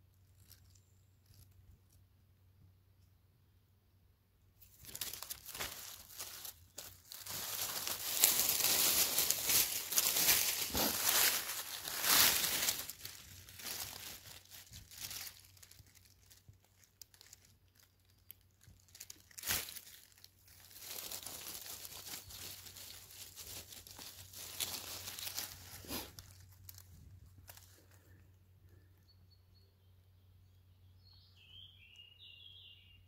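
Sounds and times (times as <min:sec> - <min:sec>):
dry leaves crackling and rustling: 0:04.6 - 0:28.2.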